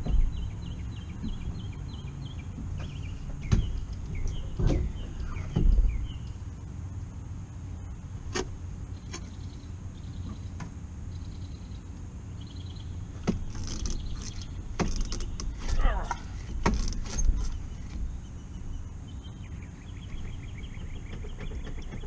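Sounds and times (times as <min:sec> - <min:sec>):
dull thumps on boat: 0:02.7 - 0:06.1.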